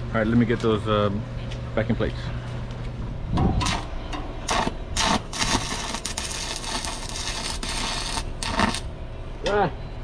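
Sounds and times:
welding arc crackling and hissing: 4.5 - 8.9.

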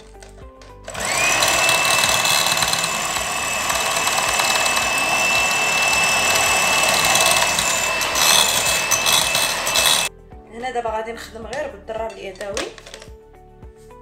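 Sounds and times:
electric hand mixer whirring: 0.9 - 10.1.

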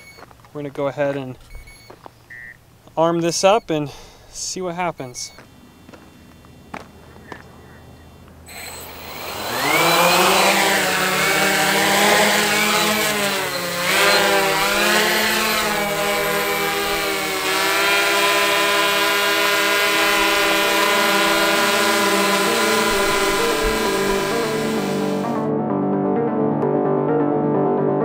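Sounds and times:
quadcopter motors whining: 5.0 - 25.5.

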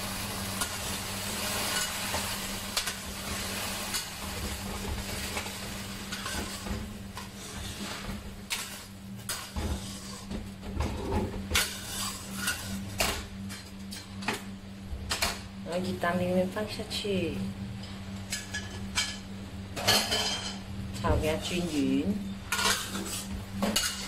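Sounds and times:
sauce sizzling in a wok: 0.0 - 10.3
metal spatula scraping: 6.1 - 10.3, 11.0 - 12.8, 22.5 - 24.0.

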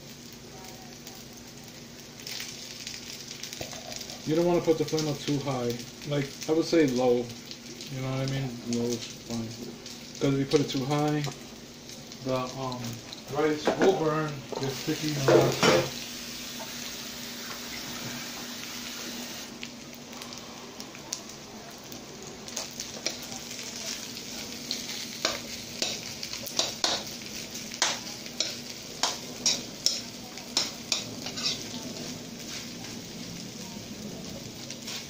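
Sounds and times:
rice sizzling in a pan: 0.0 - 35.0
metal spatula scraping: 27.8 - 32.6.

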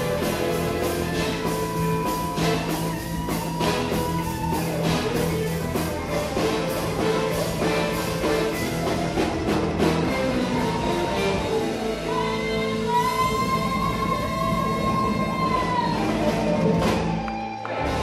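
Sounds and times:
steady drum beat: 0.0 - 12.0
live pop-rock band playing: 0.0 - 18.0.

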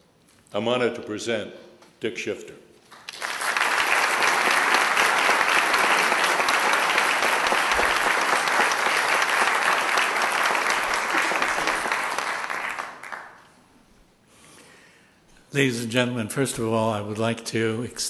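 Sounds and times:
audience applause: 3.0 - 13.4.

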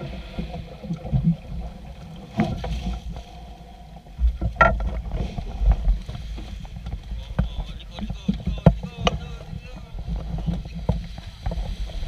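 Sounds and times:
water slapping boat hull: 0.0 - 12.0
wind buffeting microphone: 4.3 - 12.0.

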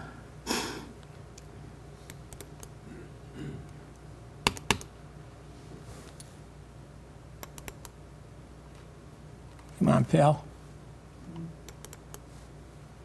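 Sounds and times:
laptop clicks: 4.4 - 4.9, 7.4 - 8.0.

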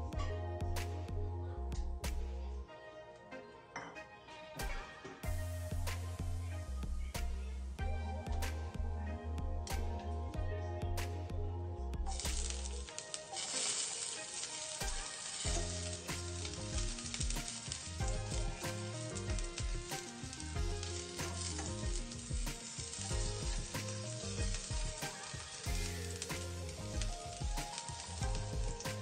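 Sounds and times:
background music with steady beat: 0.0 - 29.0
vegetables sizzling in hot oil: 5.2 - 7.8, 12.1 - 29.0.

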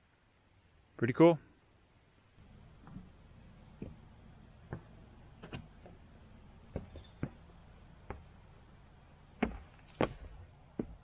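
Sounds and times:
boot footsteps on rocks: 9.4 - 11.0.

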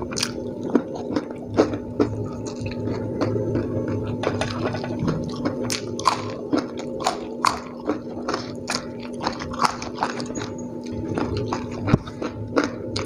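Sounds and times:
crunchy chewing: 0.0 - 13.0.

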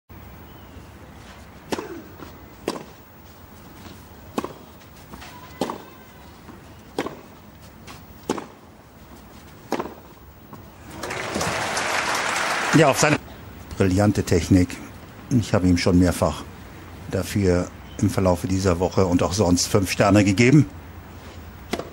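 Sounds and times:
tennis ball struck by rackets: 1.6 - 3.0, 4.3 - 7.4, 8.2 - 8.6, 9.6 - 10.2, 21.7 - 21.9
crowd applause: 10.9 - 13.2.

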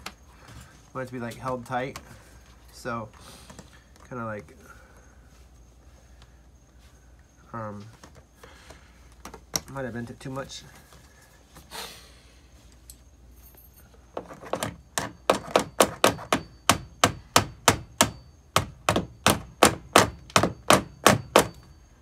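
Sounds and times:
hammer tapping on metal: 15.0 - 21.6.

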